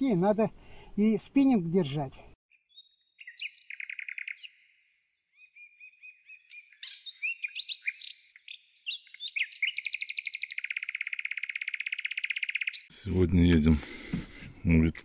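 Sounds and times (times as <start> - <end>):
songbirds singing: 0.2 - 13.2
fast bird trill: 2.5 - 4.8, 5.4 - 12.9.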